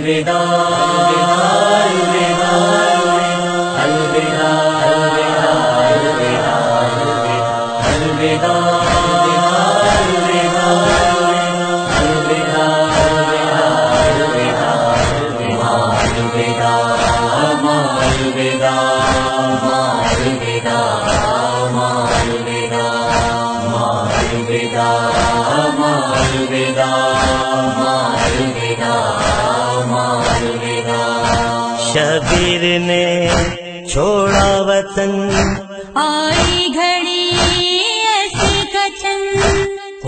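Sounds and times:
voices chanting a cappella: 0.0s - 40.0s
chest-beating slaps: 7.8s - 31.6s, 32.2s - 32.7s, 33.3s - 33.6s, 34.2s - 34.6s, 35.3s - 35.7s, 36.3s - 37.7s, 38.3s - 39.7s.

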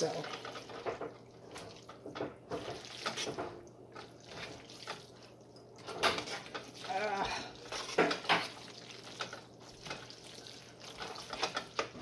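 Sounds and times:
spaghetti squelching and scraping pot: 0.0s - 12.0s.

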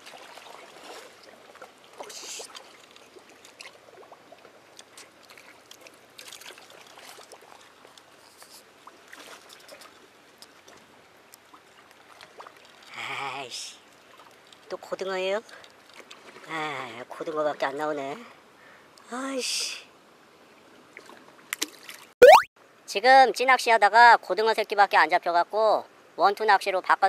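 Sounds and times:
water lapping against a wall: 0.0s - 18.1s, 20.6s - 22.2s
light clicks and rustles: 4.7s - 12.3s.

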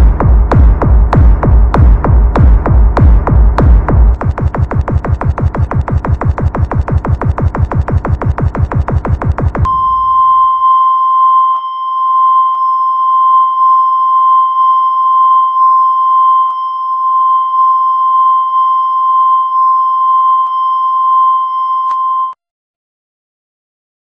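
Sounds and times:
long electronic beep tone: 9.6s - 22.4s.

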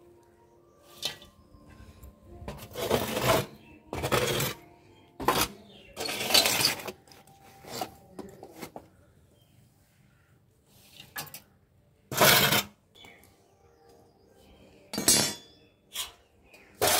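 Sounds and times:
metal sheet scraping concrete: 2.5s - 4.6s, 5.2s - 7.0s, 12.1s - 12.8s, 15.9s - 16.9s.

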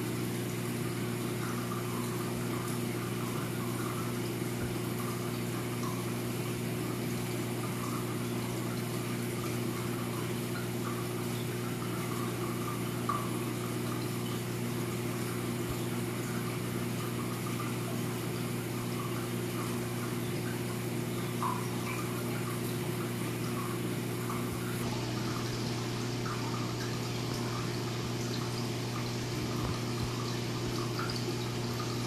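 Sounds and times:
aquarium pump humming: 0.0s - 32.0s
water gurgling and trickling: 0.3s - 32.0s.

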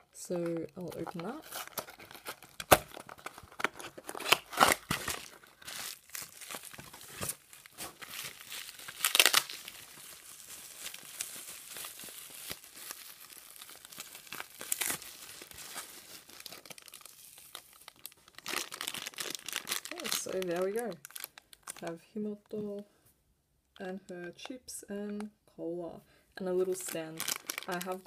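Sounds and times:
bubble wrap and plastic crinkling: 0.0s - 22.6s, 26.6s - 28.0s
cardboard box tearing: 1.5s - 9.7s.

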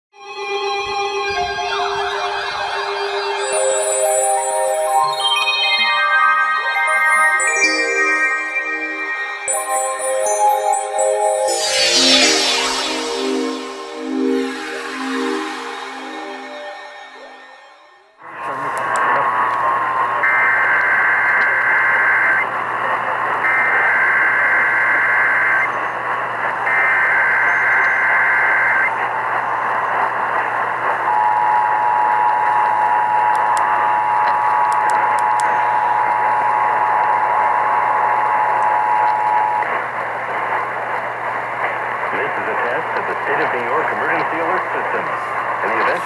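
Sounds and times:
digital data warble bursts: 3.4s - 17.7s
two-tone alert signal: 3.4s - 17.9s
radio static hiss and hum: 41.6s - 46.0s.

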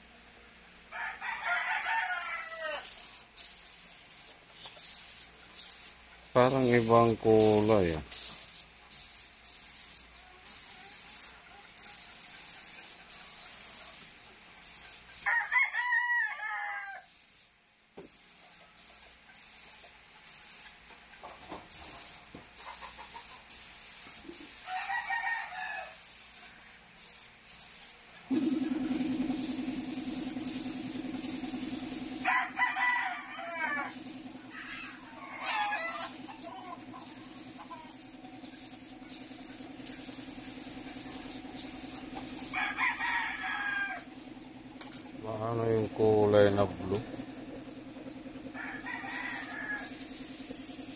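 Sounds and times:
rooster crowing: 0.9s - 3.2s, 15.2s - 17.2s, 24.5s - 26.3s, 29.8s - 38.2s, 38.8s - 44.1s, 48.5s - 50.5s
paint spray gun hissing: 2.2s - 15.3s, 17.0s - 20.8s, 21.7s - 32.6s, 33.2s - 44.1s, 49.4s - 50.9s
steady low hum: 28.3s - 32.6s, 33.2s - 35.4s.

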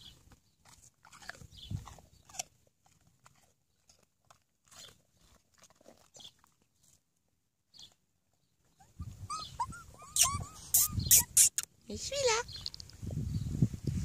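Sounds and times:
dogs crunching apple: 0.0s - 8.8s.

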